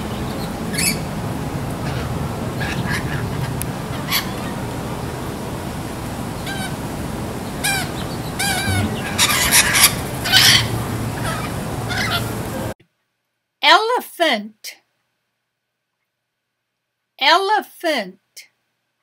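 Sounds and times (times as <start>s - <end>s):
steady background hiss: 0.0s - 13.6s
lorikeets chirping calls: 0.1s - 1.1s, 6.3s - 12.5s.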